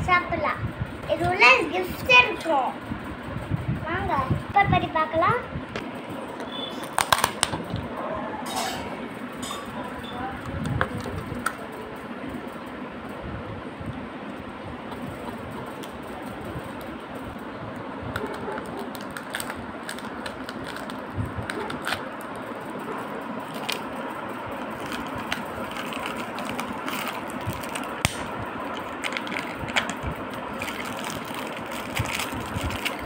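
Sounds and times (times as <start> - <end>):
steady background noise: 0.0 - 33.0
foil wrapper crinkling: 6.8 - 7.5, 18.1 - 22.4, 23.4 - 33.0.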